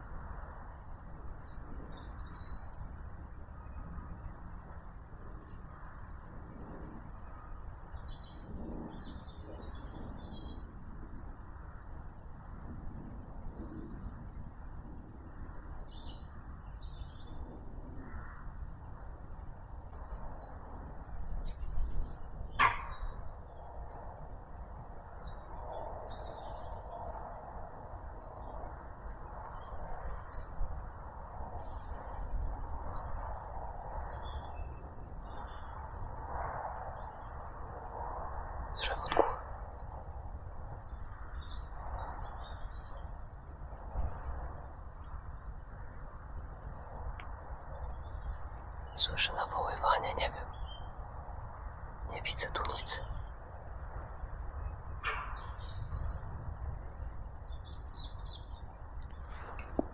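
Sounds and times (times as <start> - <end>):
low steady background noise: 0.0 - 59.9
small birds chirping: 34.0 - 37.6, 38.5 - 40.0, 46.4 - 53.7, 54.4 - 59.9.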